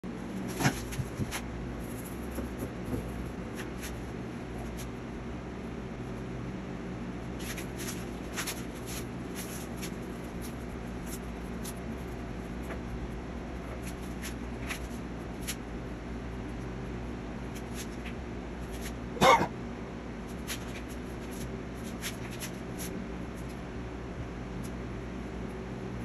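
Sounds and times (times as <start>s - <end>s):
steady low hum: 0.0s - 26.0s
brush rustling on canvas: 0.4s - 5.0s, 7.4s - 12.2s, 20.3s - 23.6s.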